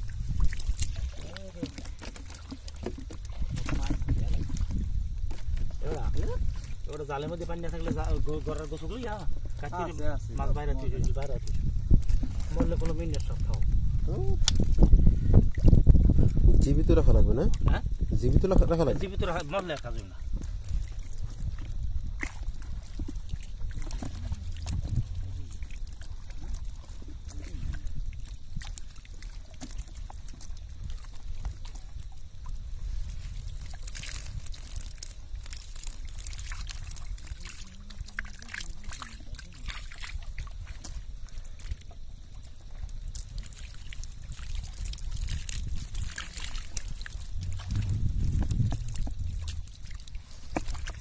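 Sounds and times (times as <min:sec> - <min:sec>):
wet squelching: 0:00.0 - 0:14.8, 0:19.3 - 0:51.0
dripping and small splashes: 0:00.0 - 0:51.0
low steady rumble: 0:20.0 - 0:51.0.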